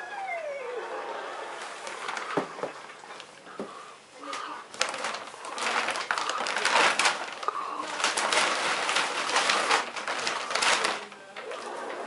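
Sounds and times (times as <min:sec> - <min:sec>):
paper bags crinkling and rustling: 0:01.8 - 0:02.6, 0:04.3 - 0:12.0.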